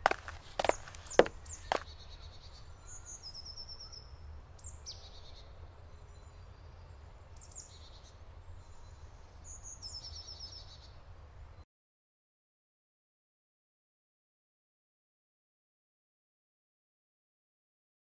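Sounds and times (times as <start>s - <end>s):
songbirds chirping and trilling: 0.0s - 11.6s.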